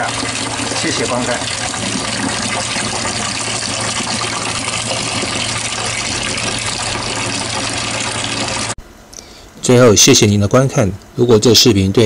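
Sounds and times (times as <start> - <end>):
water running from a tap: 0.0 - 8.8.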